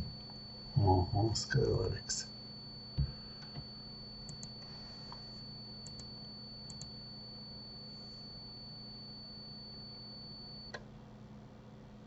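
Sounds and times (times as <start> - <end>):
thin high whine: 0.0 - 10.8
low electrical hum: 0.0 - 12.0
computer mouse clicks: 4.3 - 4.5.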